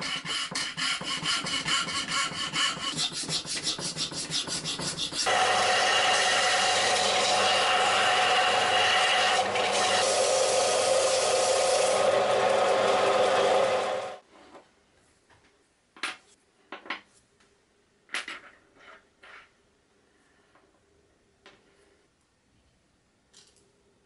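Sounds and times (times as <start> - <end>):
belt sander grinding: 5.2 - 14.2.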